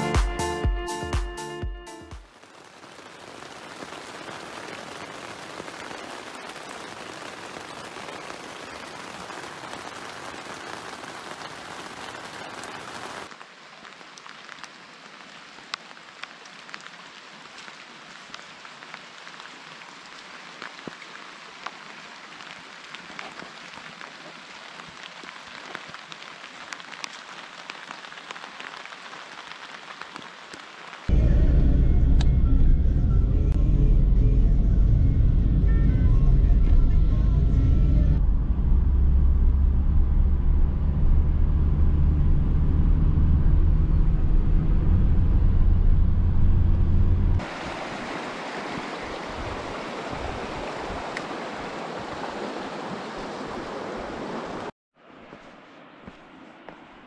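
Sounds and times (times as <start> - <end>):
rain hiss: 2.2 - 31.1, 47.4 - 54.7
raindrops ticking on hard surface: 2.2 - 31.1.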